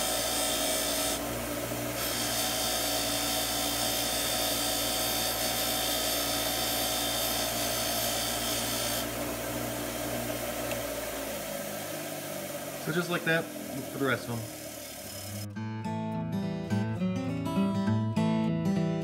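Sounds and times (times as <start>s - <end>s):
bench grinder motor hum: 0.0s - 15.5s
wire wheel brushing metal bolt: 1.9s - 9.1s.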